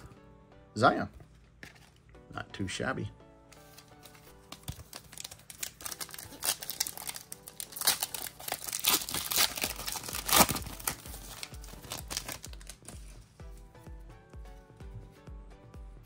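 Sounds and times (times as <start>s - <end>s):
wrapper crinkling: 3.8s - 13.2s
foil pack tearing: 4.6s - 12.9s.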